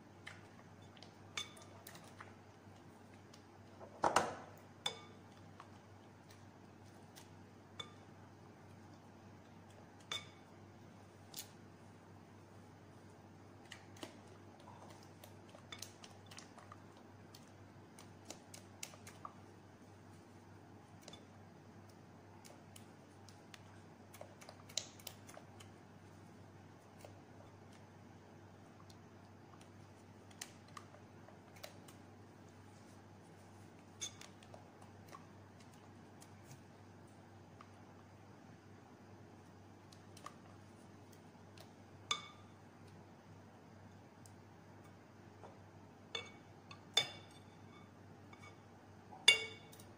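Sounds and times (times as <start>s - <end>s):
faint low hum: 0.0s - 49.9s
spatula clicking on glass bowl: 49.2s - 49.9s.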